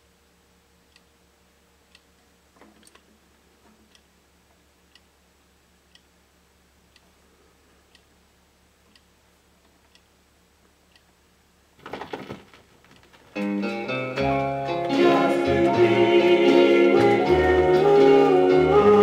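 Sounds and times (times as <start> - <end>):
soft ticking: 0.0 - 11.5
small clatter: 11.8 - 13.4.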